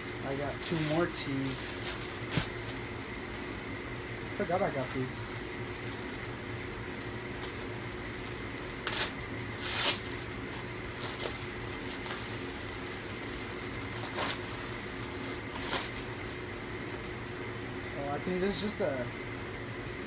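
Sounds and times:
plastic bag crinkling: 0:00.0 - 0:03.4, 0:04.8 - 0:16.4
steady room hum: 0:00.0 - 0:20.0.

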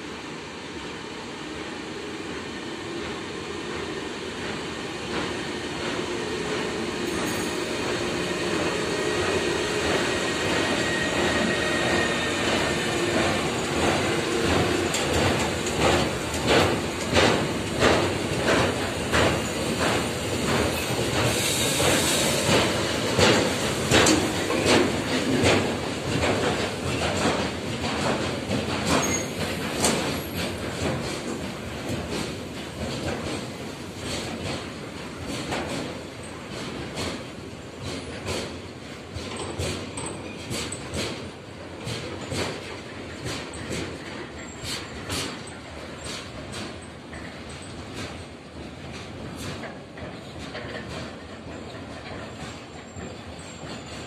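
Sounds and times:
electric locomotive passing: 0:00.2 - 0:32.7
wheels clacking over rail joints: 0:03.7 - 0:54.0.

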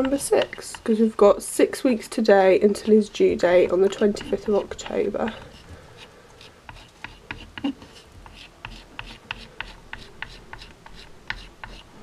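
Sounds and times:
chalk scratching on chalkboard: 0:02.6 - 0:03.1, 0:03.8 - 0:12.0.

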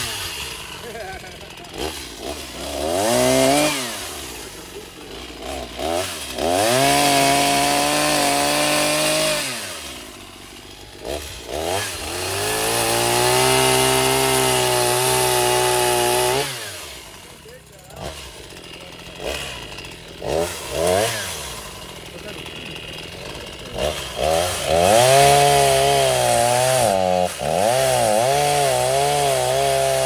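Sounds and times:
chainsaw revving and cutting: 0:00.0 - 0:30.0.

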